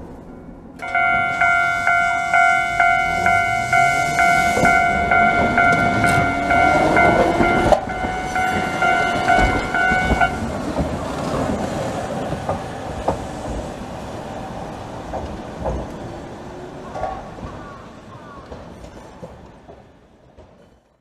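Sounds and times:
level-crossing warning bell: 0:00.0 - 0:11.9
tram running noise: 0:00.0 - 0:21.0.

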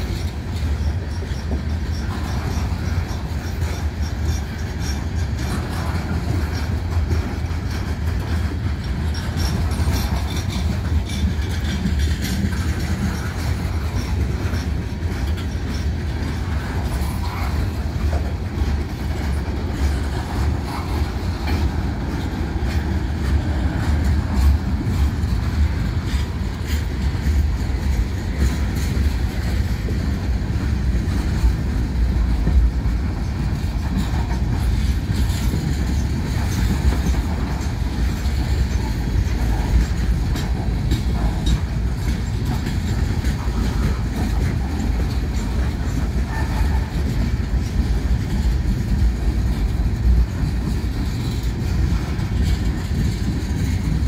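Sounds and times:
train wheels rumbling on rails: 0:00.0 - 0:54.0
wheels clicking over rail joints: 0:00.0 - 0:54.0.

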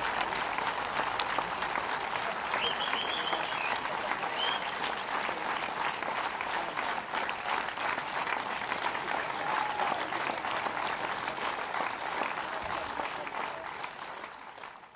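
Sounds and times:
large audience applauding: 0:00.0 - 0:14.9.

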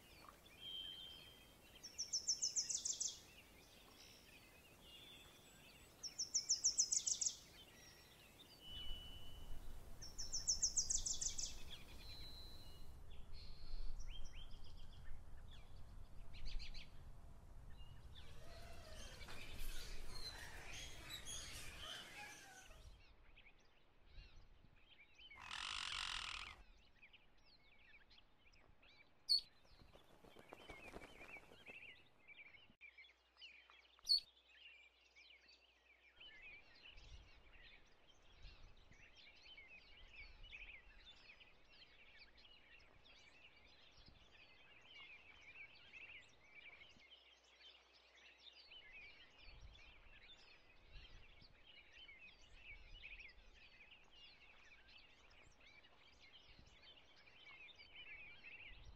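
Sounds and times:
birds chirping: 0:17.7 - 0:22.8, 0:25.3 - 0:26.6, 0:29.4 - 0:32.1.

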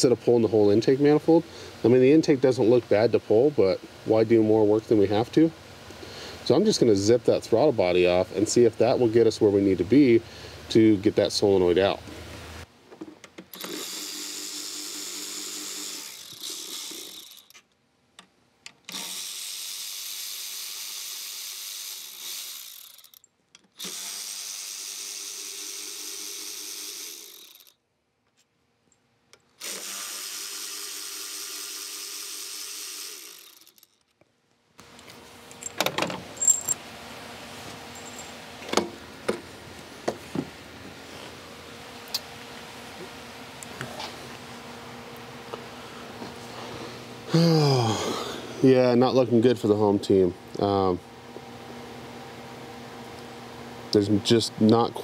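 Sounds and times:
electric ratchet running: 0:13.5 - 0:17.6, 0:18.9 - 0:27.8, 0:29.6 - 0:34.1.

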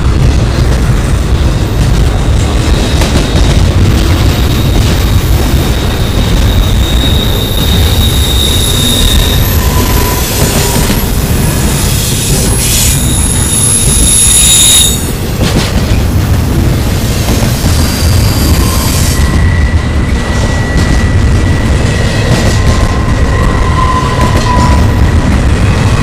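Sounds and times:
train wheels rumbling on rails: 0:00.0 - 0:26.0
high-pitched wheel squeal: 0:06.0 - 0:11.0, 0:11.7 - 0:15.1, 0:17.8 - 0:25.0.

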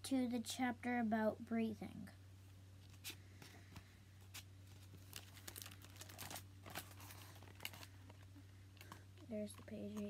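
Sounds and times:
steady low hum: 0:00.0 - 0:10.0
book pages rustling and flipping: 0:02.8 - 0:10.0.

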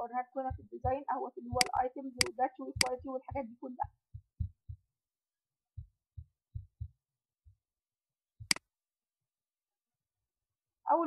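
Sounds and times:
soft low thumps: 0:00.4 - 0:04.9, 0:05.8 - 0:07.6.

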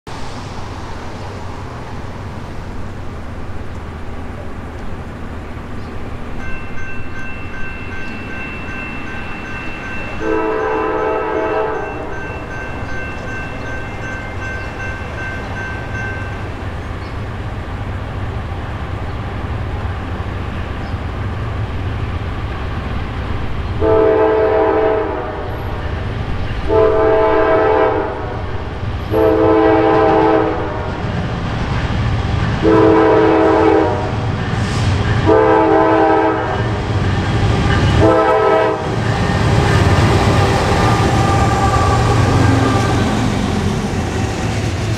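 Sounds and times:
diesel train rumble: 0:00.1 - 0:44.9
locomotive air horn blasts: 0:10.2 - 0:12.1, 0:23.8 - 0:25.8, 0:26.7 - 0:30.9, 0:32.6 - 0:34.1, 0:35.2 - 0:36.6, 0:38.0 - 0:39.0.

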